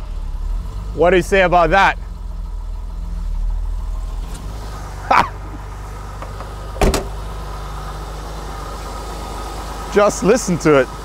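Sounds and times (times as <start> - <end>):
car engine idling: 0.0 - 11.0
car door shutting: 6.1 - 7.4.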